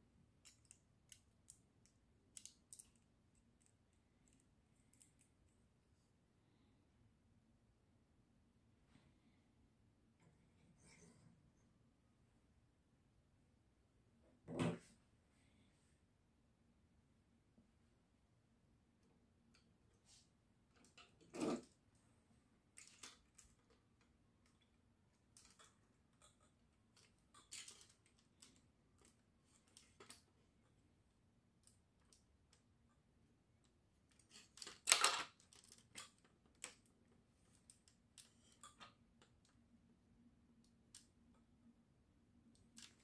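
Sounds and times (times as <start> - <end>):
plastic toy parts clicking: 0.4 - 5.3, 25.3 - 30.2, 34.1 - 36.9.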